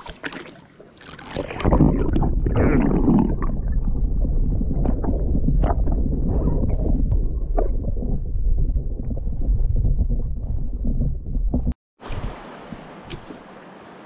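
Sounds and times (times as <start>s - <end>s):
underwater clicks and crackles: 0.0s - 13.4s
water splashing: 0.0s - 14.0s
muffled underwater rumble: 1.5s - 12.3s.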